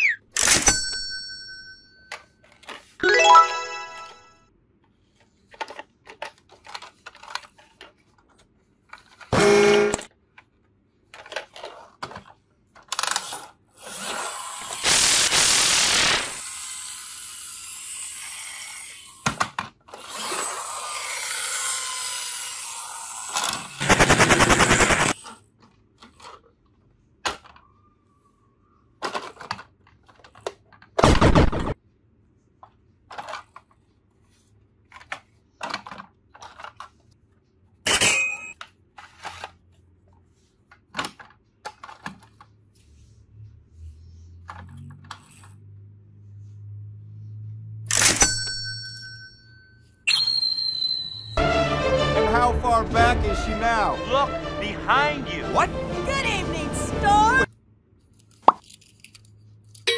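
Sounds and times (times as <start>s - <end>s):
plastic toy clicks and clatter: 5.5s - 9.3s, 11.1s - 15.0s, 29.0s - 31.0s, 33.1s - 33.8s, 34.9s - 37.1s.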